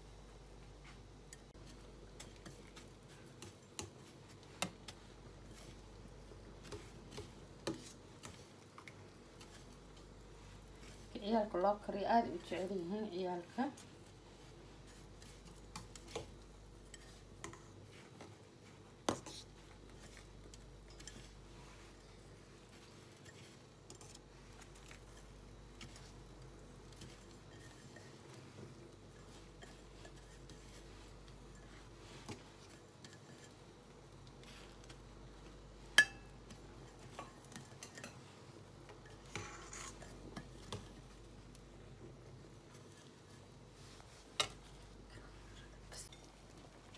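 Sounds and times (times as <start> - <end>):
clink against glass bowl: 36.0 - 36.3.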